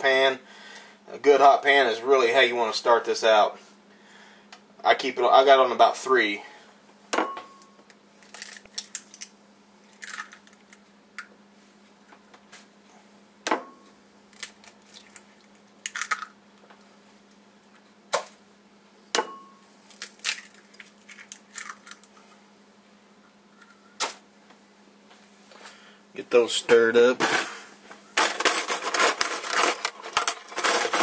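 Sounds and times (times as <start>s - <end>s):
glass bowl ringing: 7.2s - 7.7s, 19.2s - 19.7s
eggshells crackling: 8.2s - 10.8s, 14.3s - 16.4s, 19.9s - 22.2s.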